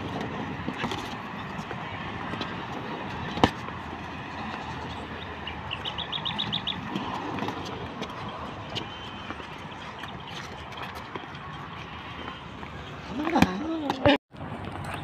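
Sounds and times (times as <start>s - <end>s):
outdoor background noise: 0.0s - 15.0s.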